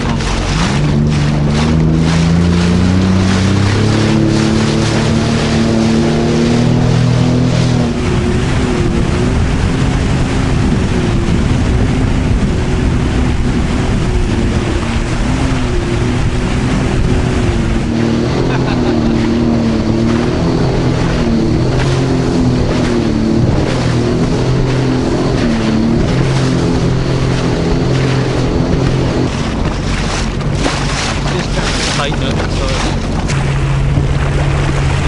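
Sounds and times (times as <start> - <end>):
jet ski engine running: 0.0 - 35.0
rush of spray and water: 0.0 - 35.0
wind on microphone: 0.0 - 35.0.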